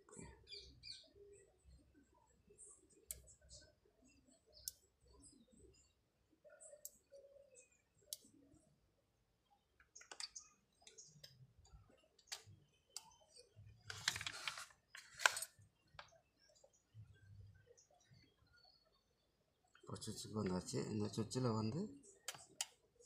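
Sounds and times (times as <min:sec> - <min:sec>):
small parts clicking and tapping: 0:09.8 - 0:11.4.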